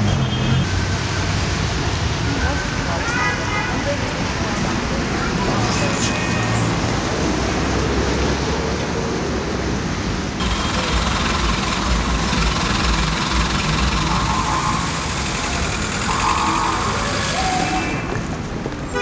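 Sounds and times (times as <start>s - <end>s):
city traffic rumble: 0.0s - 19.0s
hissy street ambience: 0.0s - 19.0s.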